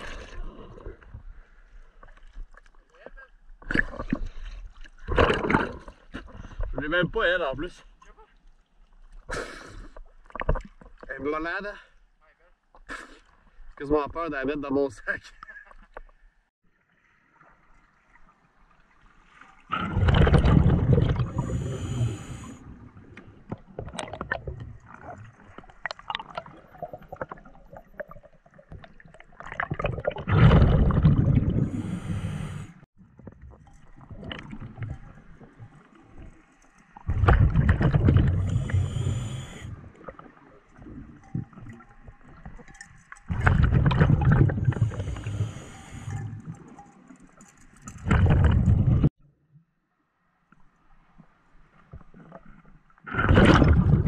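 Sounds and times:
rushes of exhaled bubbles: 0:00.0 - 0:01.5, 0:19.6 - 0:36.3, 0:37.0 - 0:42.6, 0:43.3 - 0:46.8, 0:47.9 - 0:49.1, 0:53.0 - 0:54.0.

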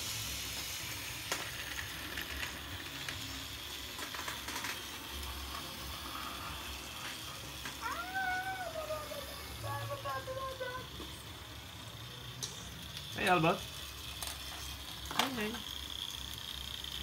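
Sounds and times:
toy train motors hissing: 0:00.0 - 0:17.0.

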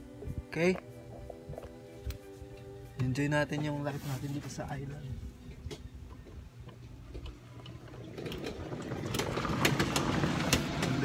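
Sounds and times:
golf cart rattling: 0:06.8 - 0:11.0.

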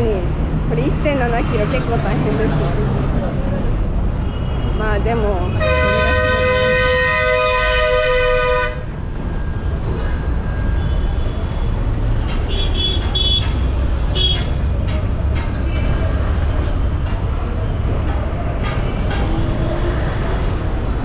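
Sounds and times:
city traffic rumble: 0:00.0 - 0:21.0
bus horn blaring: 0:05.6 - 0:08.8.

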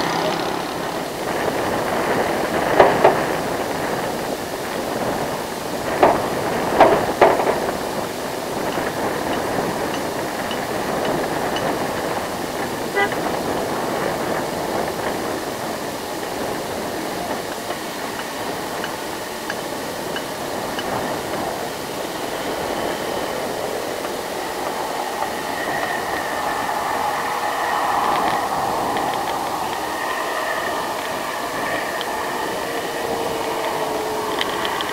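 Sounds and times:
bus engine driving past: 0:00.0 - 0:34.9
short horn toot: 0:12.9 - 0:13.4.

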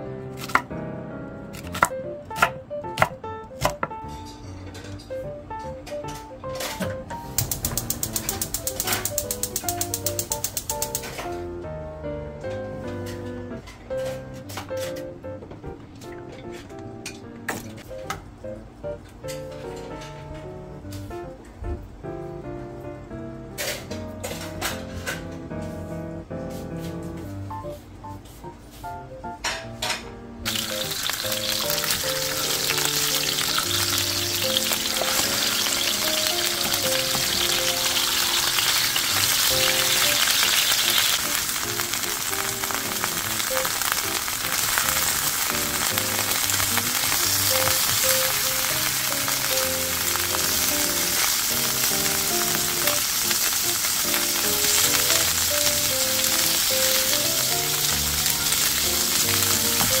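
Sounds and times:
food sizzling in hot oil: 0:07.2 - 0:11.2, 0:30.4 - 1:00.0.

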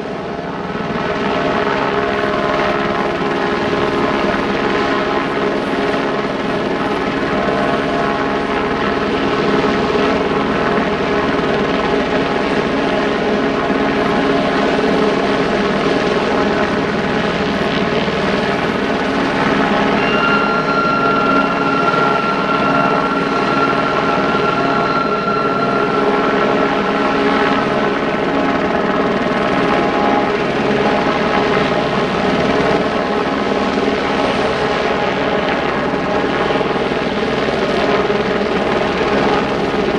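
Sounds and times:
helicopter engine and rotor drone: 0:00.0 - 0:39.9
thin high squeal: 0:18.5 - 0:29.6.

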